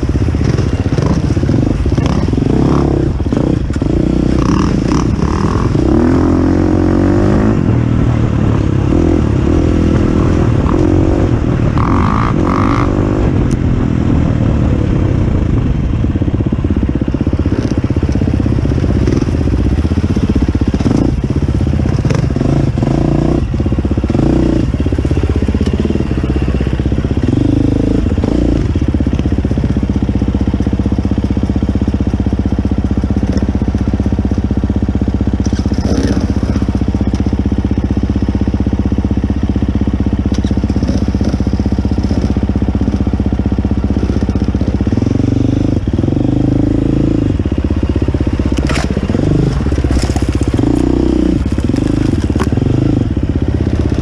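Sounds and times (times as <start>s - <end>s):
dirt bike engine revving: 0.0s - 54.0s
knocks and clatter on rocks: 48.6s - 49.0s, 49.6s - 52.6s.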